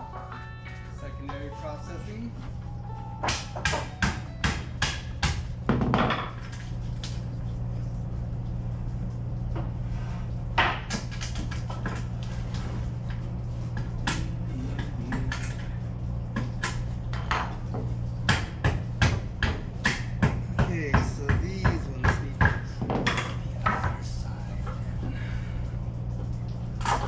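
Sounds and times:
steady low hum: 0:00.0 - 0:27.0
wooden boards knocking: 0:03.2 - 0:06.4.

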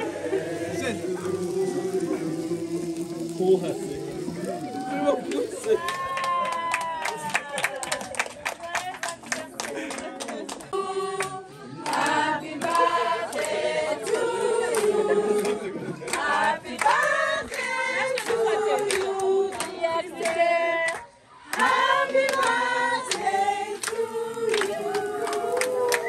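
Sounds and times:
group of people singing: 0:00.0 - 0:06.1, 0:10.6 - 0:26.0
hand clapping: 0:05.3 - 0:26.0.

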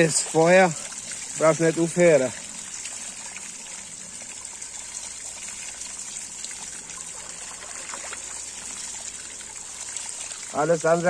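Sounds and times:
water pouring into bucket: 0:00.0 - 0:11.0.

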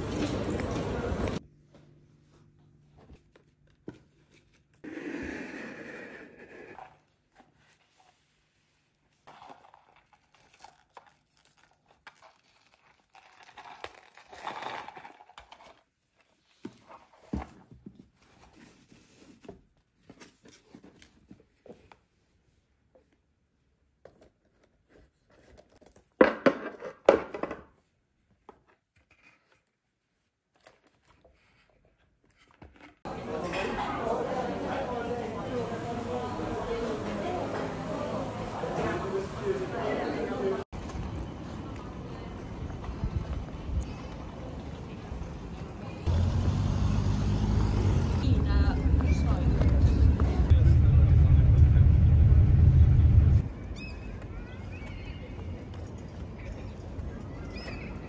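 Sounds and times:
paper rustling and crinkling: 0:06.9 - 0:22.3, 0:24.1 - 0:26.2, 0:28.3 - 0:33.0.

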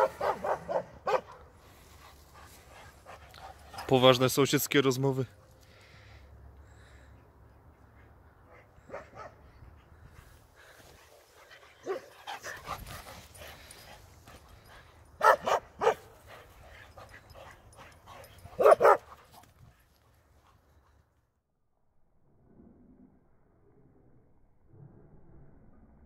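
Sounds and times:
dogs barking: 0:00.0 - 0:01.5, 0:08.6 - 0:09.4, 0:11.8 - 0:12.2, 0:15.2 - 0:16.1, 0:18.2 - 0:19.2.

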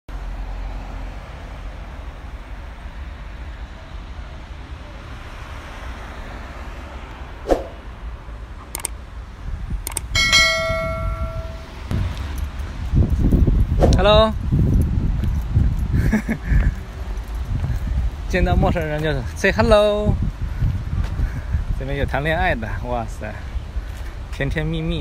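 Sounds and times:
street traffic rumble: 0:00.1 - 0:25.0
short swoosh: 0:07.4 - 0:07.8, 0:13.8 - 0:14.1
clicks: 0:08.6 - 0:09.0, 0:09.8 - 0:10.2
bell ding: 0:10.2 - 0:11.9.

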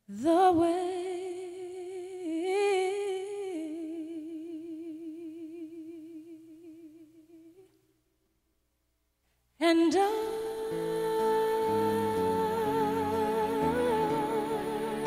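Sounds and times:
person singing a long note: 0:09.9 - 0:15.0.

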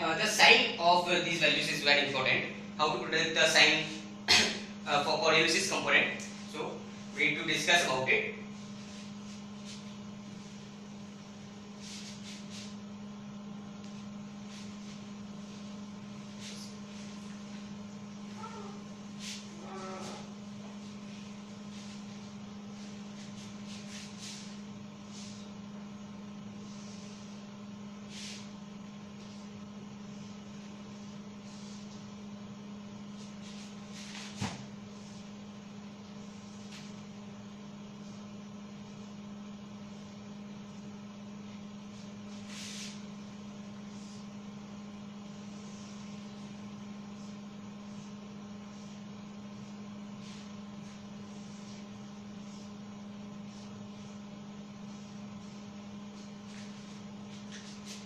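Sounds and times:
steady low hum: 0:00.0 - 0:58.0
duster rubbing whiteboard: 0:11.7 - 0:12.8, 0:18.3 - 0:25.5, 0:45.4 - 0:54.2, 0:54.8 - 0:58.0.

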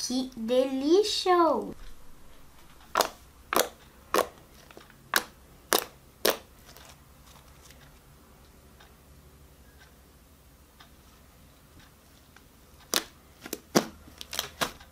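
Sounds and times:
slime popping: 0:02.9 - 0:06.8, 0:12.9 - 0:14.8.

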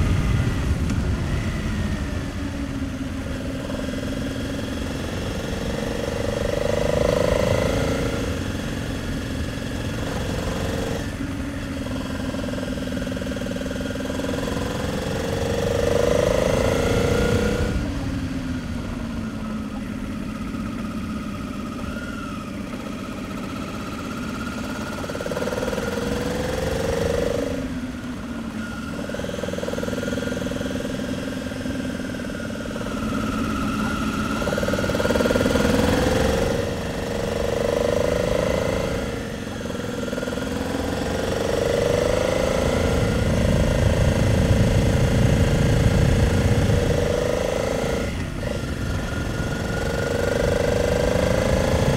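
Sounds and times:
wind noise: 0:00.0 - 0:03.8, 0:41.5 - 0:51.9
motorcycle engine revving: 0:00.0 - 0:51.9.

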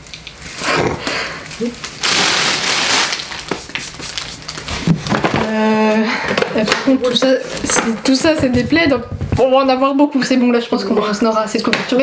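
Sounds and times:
packaging rustling and crinkling: 0:01.3 - 0:05.6.

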